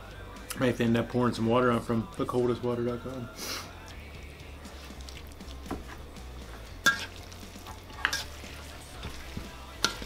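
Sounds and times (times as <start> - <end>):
fork clinking against metal bowl: 6.8 - 8.4
fork stirring pasta in bowl: 6.8 - 10.0.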